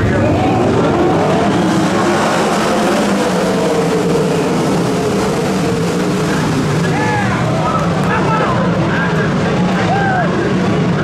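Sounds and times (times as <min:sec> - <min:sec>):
sprint car engines racing past: 0:00.0 - 0:11.0.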